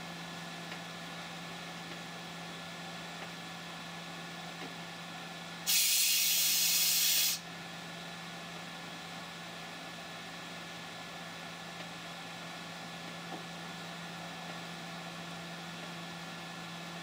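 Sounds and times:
compressed air hissing: 5.7s - 7.4s.

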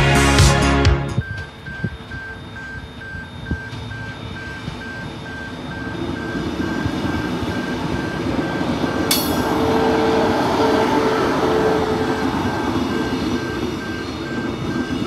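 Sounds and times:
crossing warning signal beeping: 1.1s - 15.0s
electric train rumbling past: 3.6s - 15.0s.

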